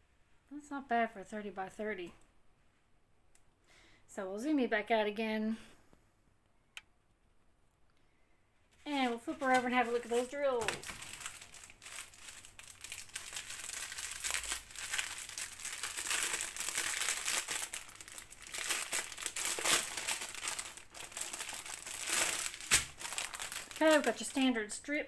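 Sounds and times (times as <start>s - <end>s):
plastic bag crinkling: 8.8s - 24.6s.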